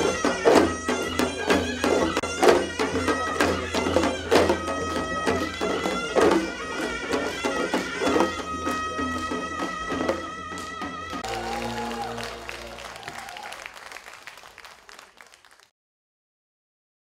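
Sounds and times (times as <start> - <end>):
sharp drum beats: 0.0 - 13.4
reedy wind instrument melody: 0.0 - 13.7.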